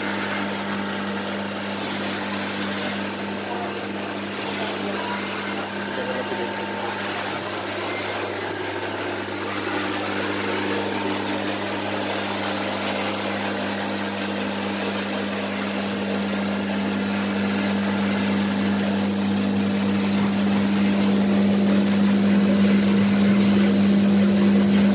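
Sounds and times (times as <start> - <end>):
machine hum with fan hiss: 0.0 - 24.9.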